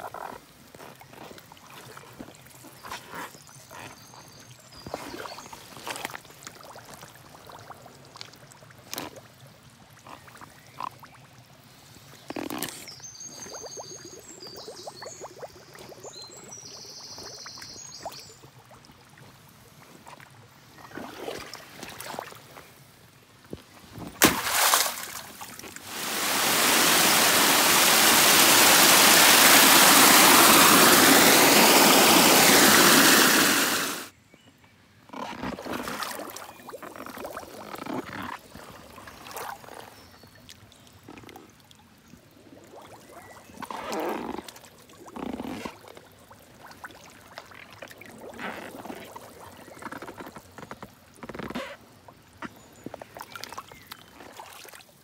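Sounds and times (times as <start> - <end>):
rush of water: 17.8 - 34.1, 46.6 - 52.0
boots squelching through mud: 23.9 - 26.0.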